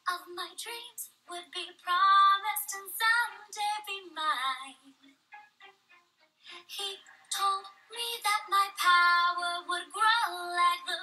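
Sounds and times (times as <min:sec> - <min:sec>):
faint music: 0:00.0 - 0:11.0
person singing: 0:06.5 - 0:11.0.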